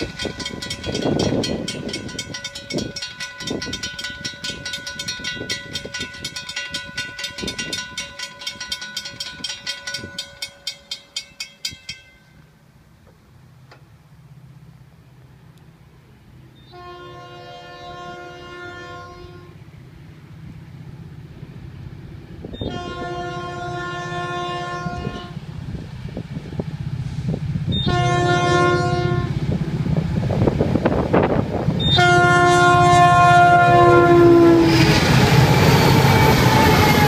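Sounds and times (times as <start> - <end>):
crossing bell ringing: 0.0 - 12.5
diesel locomotives rumbling: 0.0 - 37.0
locomotive air horn: 16.7 - 19.6, 22.5 - 25.4, 27.7 - 29.4, 31.8 - 37.0.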